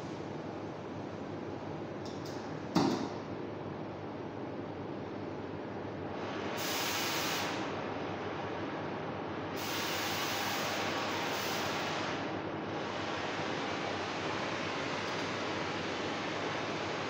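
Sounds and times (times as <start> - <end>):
gas torch hissing: 6.4 - 7.7, 9.6 - 12.3.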